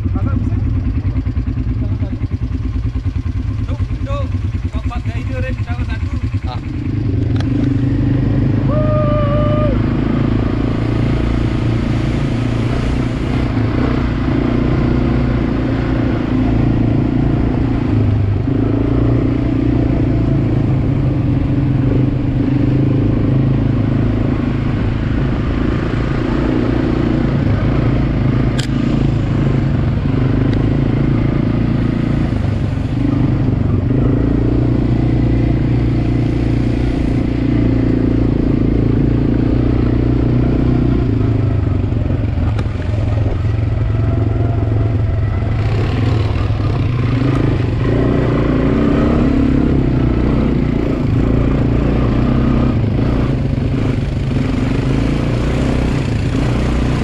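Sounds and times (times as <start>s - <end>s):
quad bike engine running: 0.0s - 57.0s.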